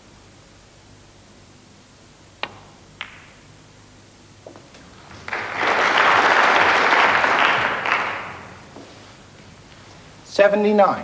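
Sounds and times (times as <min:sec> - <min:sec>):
cue tip striking ball: 0:02.4 - 0:03.5, 0:07.5 - 0:08.9
snooker balls clicking: 0:02.4 - 0:03.5, 0:04.4 - 0:08.9
audience applause: 0:05.0 - 0:08.8.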